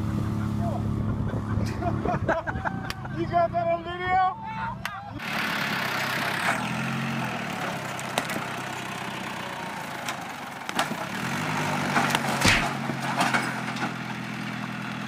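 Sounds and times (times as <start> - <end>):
tractor engine running under load: 5.2 - 15.0
sharp cracks and knocks: 8.1 - 8.5, 10.0 - 11.1, 11.8 - 14.0.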